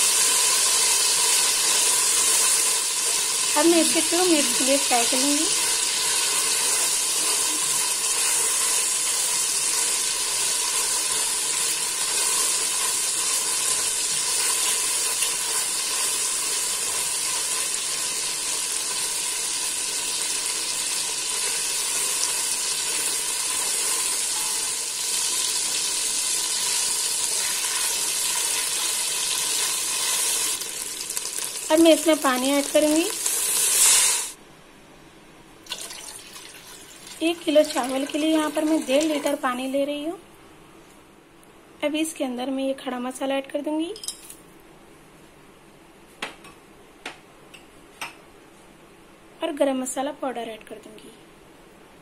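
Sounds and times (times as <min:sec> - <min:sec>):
oil sizzling in a pot: 0:00.0 - 0:34.4, 0:35.7 - 0:40.0.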